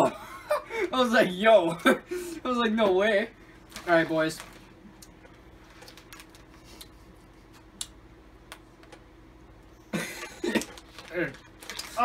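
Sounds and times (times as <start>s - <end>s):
candy bag rustling: 3.6s - 4.8s, 5.5s - 6.9s, 10.4s - 12.0s.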